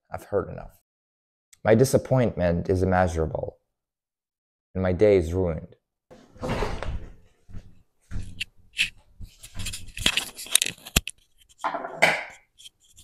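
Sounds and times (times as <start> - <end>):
rustles and clatters: 8.1 - 13.0.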